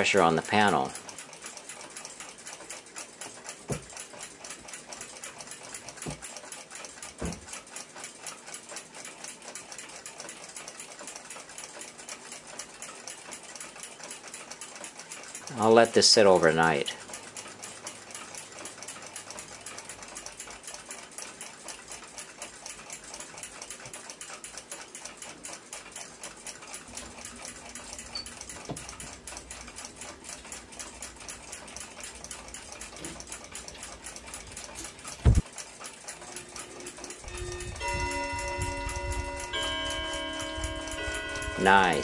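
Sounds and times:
mechanical clocks ticking: 0.0 - 42.0
clock chime ringing: 36.4 - 42.0.

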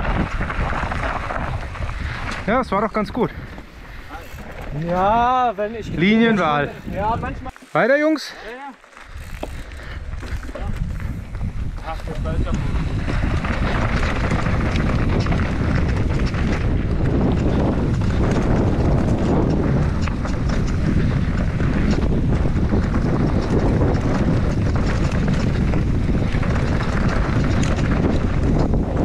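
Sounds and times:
wind rushing over microphone: 0.0 - 7.5, 9.1 - 29.0
bike tyres rolling on dirt: 0.0 - 29.0
small clicks and clatters: 8.4 - 29.0.

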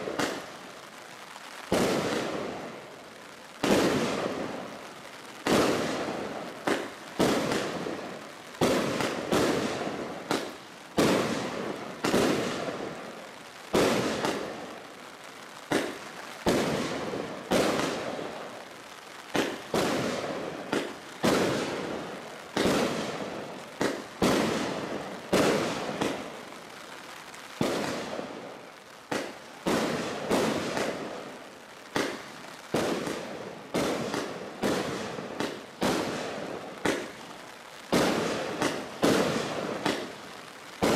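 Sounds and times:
firework barrage bangs: 0.0 - 0.5, 1.7 - 2.6, 3.6 - 4.6, 5.4 - 13.0, 13.7 - 14.6, 15.7 - 18.3, 19.3 - 26.3, 29.1 - 31.2, 31.9 - 37.2, 37.9 - 40.2.

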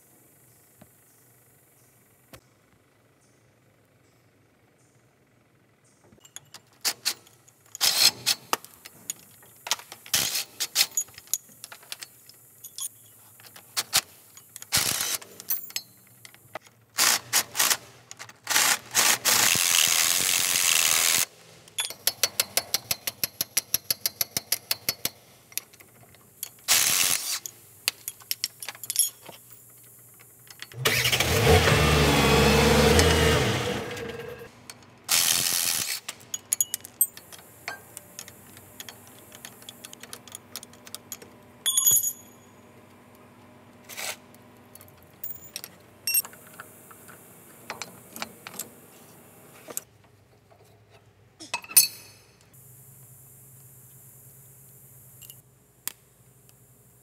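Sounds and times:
wrenches clinking on bolts: 6.2 - 18.7, 21.8 - 29.8, 35.1 - 42.5, 44.8 - 48.8, 51.6 - 52.3
ratchet wrench clicking: 18.5 - 25.8, 26.4 - 29.2
bursts of mechanical noise: 30.7 - 34.5.

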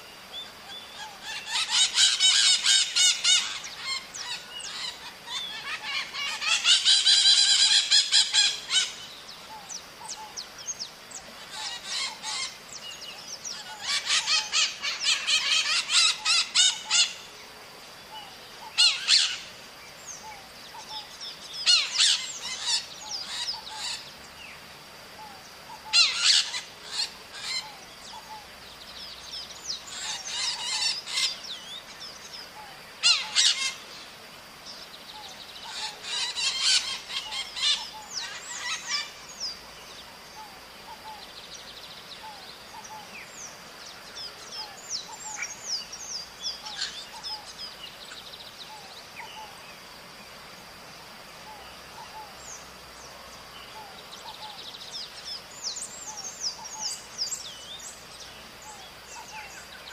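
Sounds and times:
parakeets screeching: 1.2 - 9.0, 33.0 - 33.8, 35.7 - 39.1.

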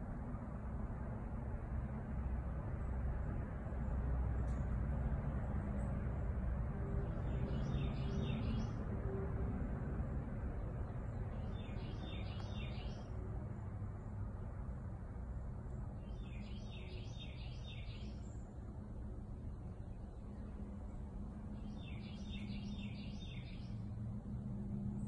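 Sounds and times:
low background rumble: 0.0 - 25.0
songbird chirping: 7.0 - 8.8, 10.8 - 13.1, 15.7 - 23.9.

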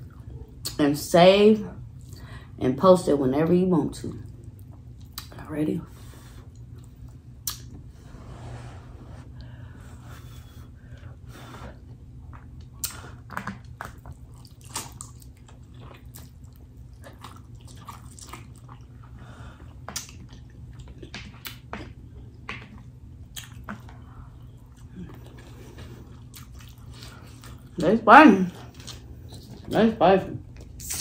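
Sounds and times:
mouth clicks and smacks: 7.4 - 7.8, 12.3 - 16.4, 19.8 - 24.0, 30.6 - 31.0
chewing noodles: 11.8 - 27.8.

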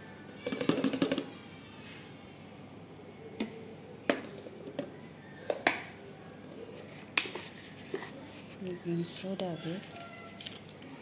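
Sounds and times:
plastic containers clicking and knocking: 0.4 - 1.3.

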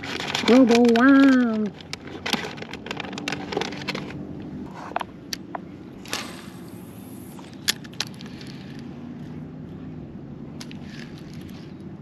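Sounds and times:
fishing tackle clicks and knocks: 0.0 - 4.2.

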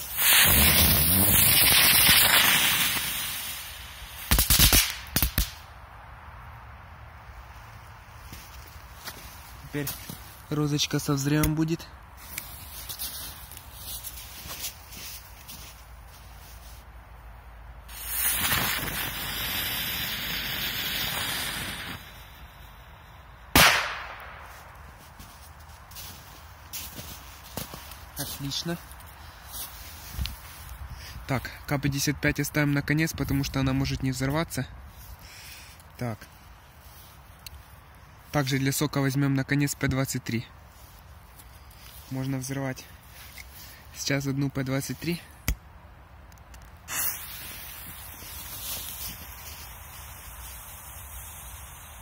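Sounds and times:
ground firework hissing: 0.0 - 5.6, 17.9 - 23.6, 35.0 - 35.9, 46.8 - 52.0
sharp firework cracks: 0.0 - 5.7, 17.9 - 22.6, 23.5 - 24.8, 46.9 - 52.0
firework bang: 23.5 - 24.5.

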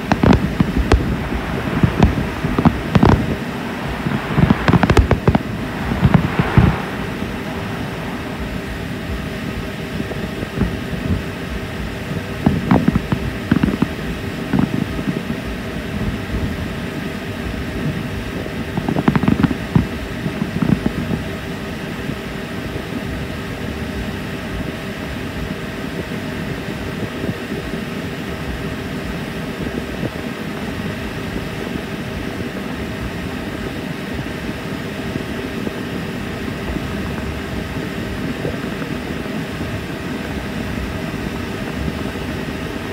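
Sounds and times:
distant fireworks bangs: 0.0 - 10.8
mechanical drone with hum: 0.0 - 42.9.

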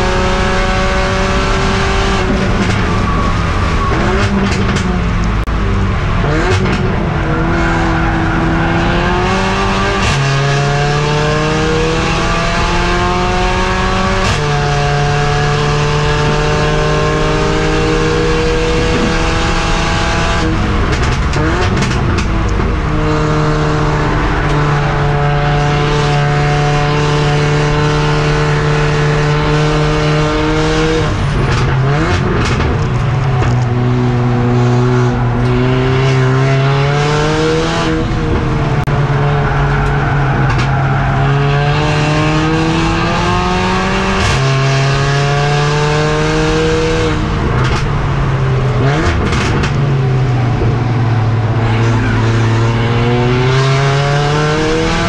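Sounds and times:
race car engine: 0.0 - 55.0.

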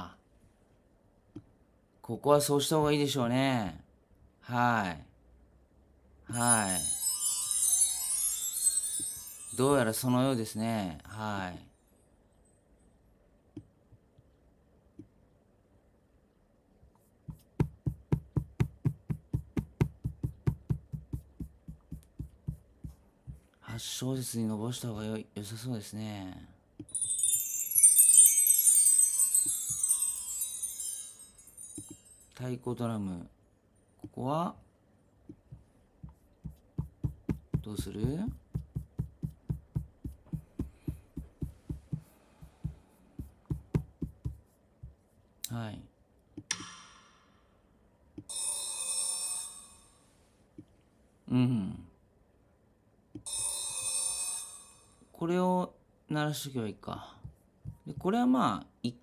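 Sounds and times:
drum hits: 17.6 - 23.4, 36.4 - 42.0, 42.6 - 44.4.

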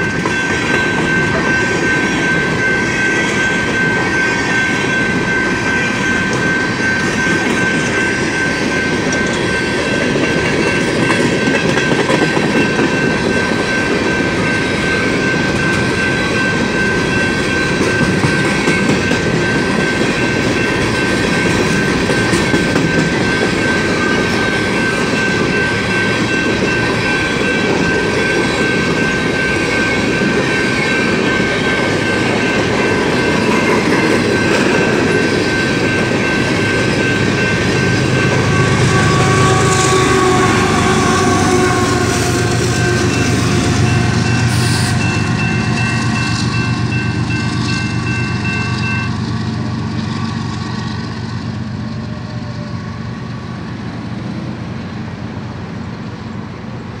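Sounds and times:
crossing bell ringing: 0.0 - 53.7
diesel locomotive passing: 0.0 - 57.0
train wheels clattering over rails: 6.0 - 48.2.

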